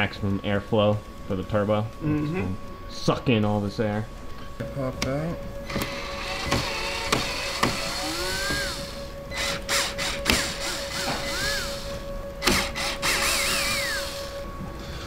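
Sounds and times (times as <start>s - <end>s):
background music: 0.0s - 15.0s
cordless drill running: 5.7s - 14.4s.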